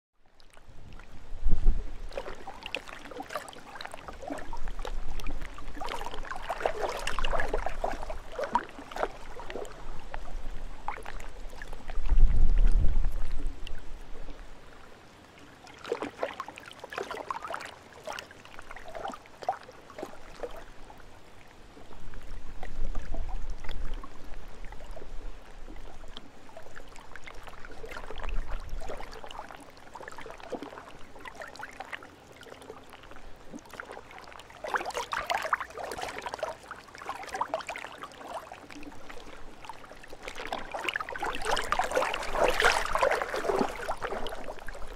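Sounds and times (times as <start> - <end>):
lake waves lapping at shore: 0.3 - 12.2, 13.1 - 44.9
wind rumble on microphone: 0.5 - 2.7, 4.1 - 14.8, 20.7 - 29.5.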